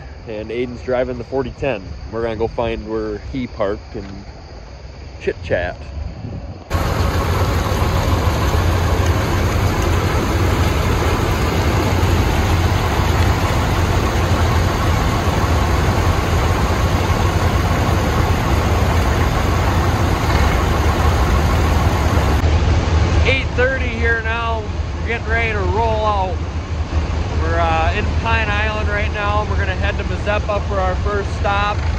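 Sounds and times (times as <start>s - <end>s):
tractor engines idling: 6.7s - 22.4s, 23.0s - 31.9s.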